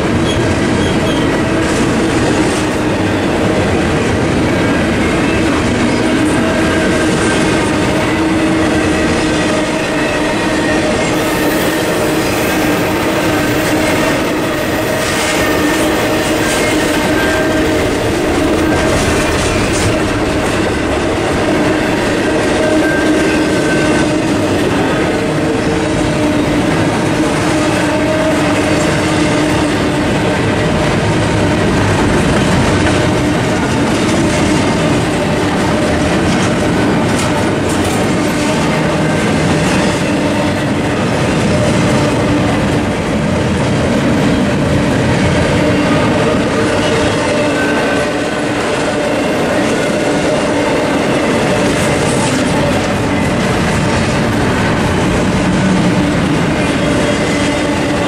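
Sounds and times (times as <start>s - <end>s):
freight train cars rolling: 0.0s - 58.0s.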